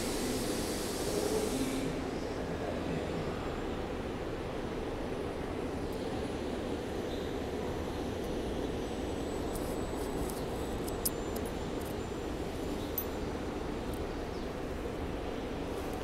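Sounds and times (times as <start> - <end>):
low rumble and hum of station: 0.0 - 16.0.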